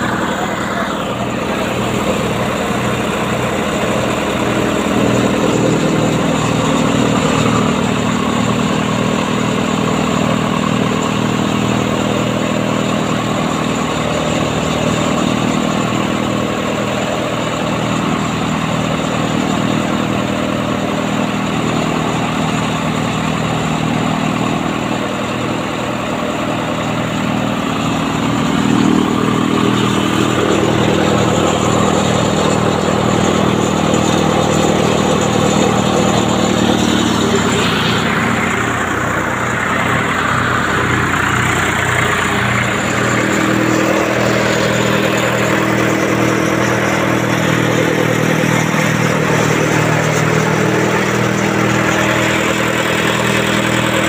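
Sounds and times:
tractor diesel engine droning: 0.0s - 54.0s.

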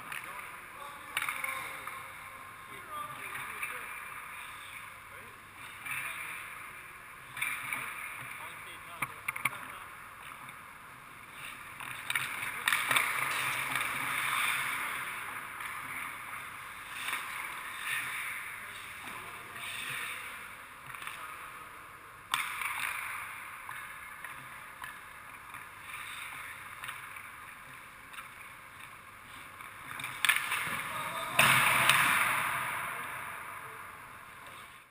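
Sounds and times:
puck and stick hitting gear: 0.0s - 2.1s, 5.6s - 6.6s, 7.2s - 10.5s, 11.3s - 21.4s, 22.3s - 33.6s
skates scraping ice: 0.0s - 9.6s, 10.2s - 33.6s.

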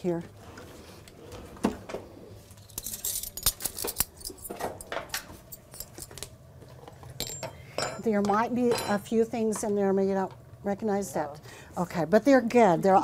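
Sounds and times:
metal utensils clinking: 2.6s - 6.3s.

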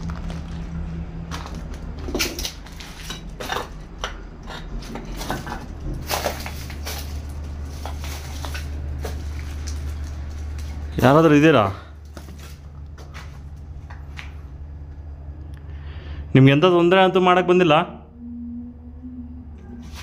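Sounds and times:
footsteps crunching over rubble: 0.0s - 15.0s
steady low hum: 0.0s - 20.0s.

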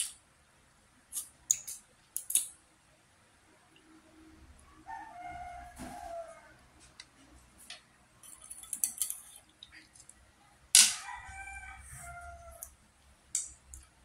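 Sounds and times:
rooster crowing: 4.8s - 6.6s, 10.9s - 12.7s.

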